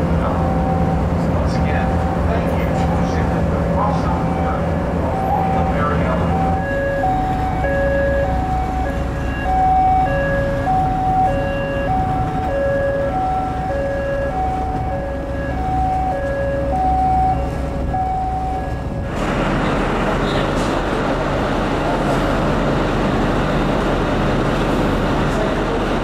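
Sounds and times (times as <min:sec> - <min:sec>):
low engine rumble: 0:00.0 - 0:26.0
two-tone hi-lo siren: 0:00.2 - 0:03.2, 0:03.9 - 0:19.0.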